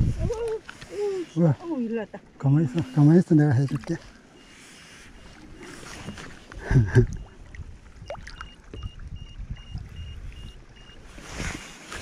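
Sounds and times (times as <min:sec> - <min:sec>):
water sloshing against hull: 0:00.0 - 0:12.0
fish thrashing and splashing: 0:05.1 - 0:09.0.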